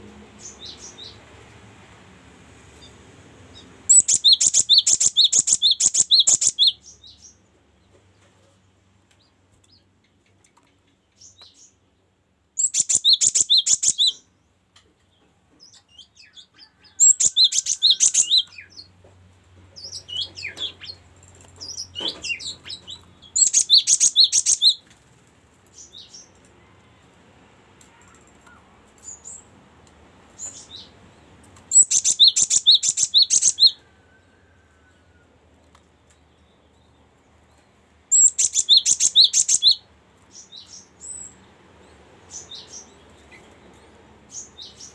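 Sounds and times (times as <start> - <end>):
soft bird chirps: 2.8 - 8.6, 12.6 - 14.3, 15.0 - 18.9, 21.6 - 24.8, 31.7 - 33.9, 36.0 - 41.4
bird singing rapid high notes: 3.8 - 6.8, 12.6 - 14.2, 21.7 - 24.8, 31.7 - 33.8, 38.1 - 39.8.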